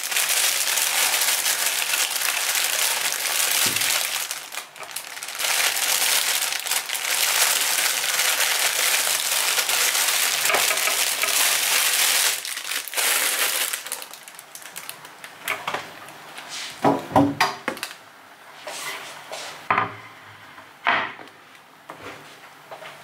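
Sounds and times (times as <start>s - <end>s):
plastic bag crinkling: 0.0s - 15.4s, 17.7s - 18.0s.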